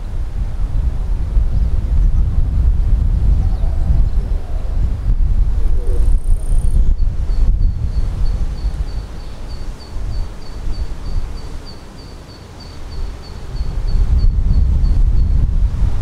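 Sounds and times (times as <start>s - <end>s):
wind buffeting microphone: 0.0s - 11.7s, 12.7s - 16.0s
insect chirping: 5.5s - 15.0s.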